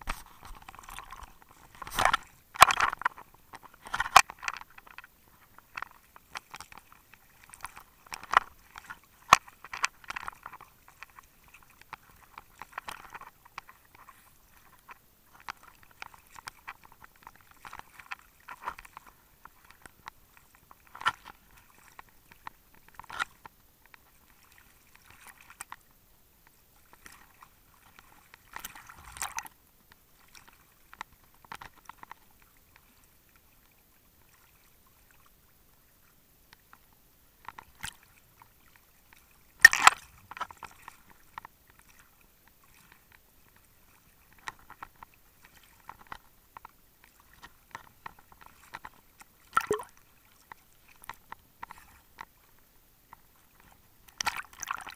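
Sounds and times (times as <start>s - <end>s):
small waves splashing: 46.9s - 52.1s.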